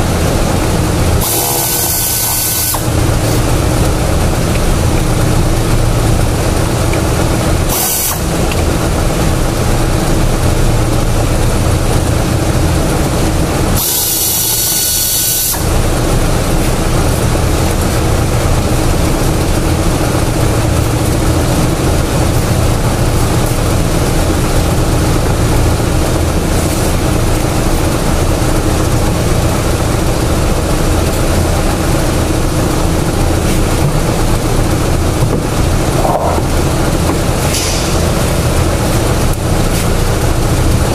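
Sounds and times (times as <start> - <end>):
machine drone with low hum: 0.0 - 40.9.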